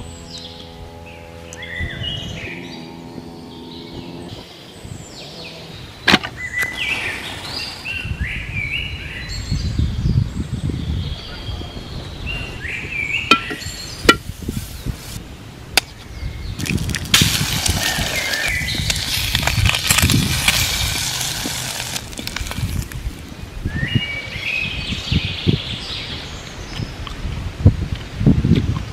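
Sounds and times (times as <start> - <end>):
songbirds chirping: 0.0 - 27.2
egg sizzling in a pan: 16.7 - 23.0.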